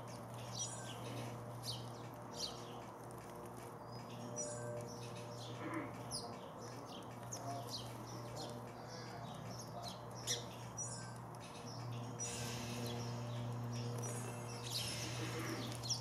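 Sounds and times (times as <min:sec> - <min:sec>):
sparrows chirping: 0:00.0 - 0:16.0.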